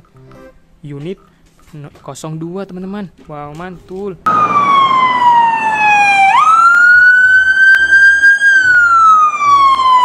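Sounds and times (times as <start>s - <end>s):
police siren wailing: 4.3s - 10.0s.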